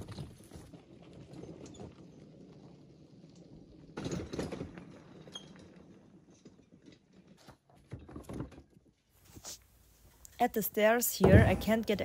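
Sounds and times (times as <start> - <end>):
cart wheels crunching on gravel: 0.0 - 7.5
logs rattling in a cart: 0.0 - 9.0.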